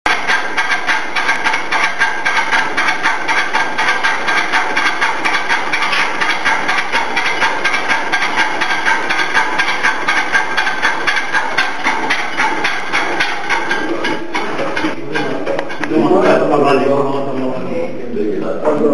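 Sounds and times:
steam engine exhaust chuffing: 0:00.1 - 0:18.9.

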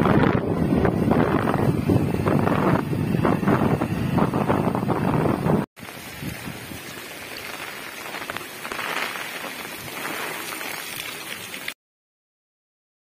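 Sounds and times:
heavy rain on wet ground: 0:05.1 - 0:11.8.

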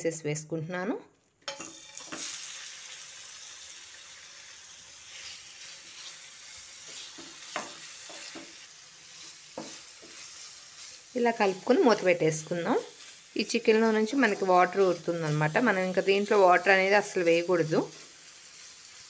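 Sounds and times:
wooden spatula scraping a pan: 0:01.5 - 0:02.6, 0:05.1 - 0:19.0
chicken sizzling in hot oil: 0:01.5 - 0:19.0.

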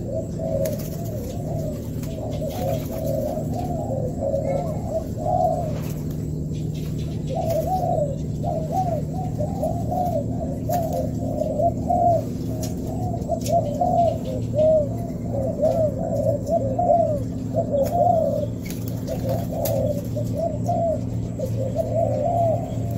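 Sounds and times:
doves cooing: 0:00.0 - 0:22.9
steady low hum: 0:00.0 - 0:22.9.

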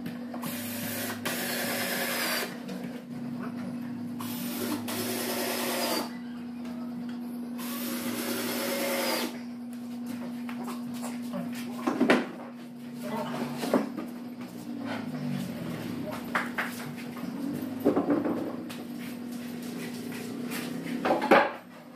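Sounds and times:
steady low hum: 0:00.0 - 0:21.9
cordless drill driving screws: 0:07.6 - 0:09.4.

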